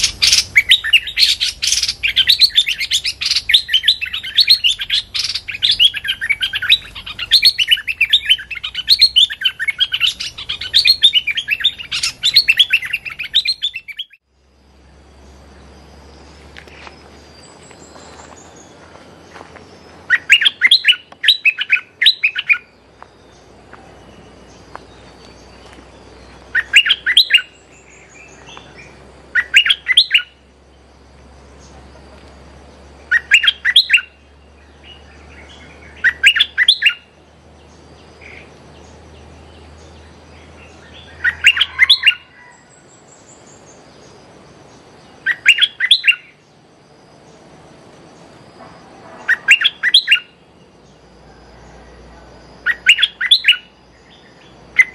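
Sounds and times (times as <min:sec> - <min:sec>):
bird chattering calls: 0:00.0 - 0:14.2, 0:20.0 - 0:22.8, 0:25.5 - 0:30.4, 0:33.0 - 0:37.2, 0:40.5 - 0:42.5, 0:45.2 - 0:46.4, 0:48.9 - 0:50.4, 0:52.6 - 0:54.9.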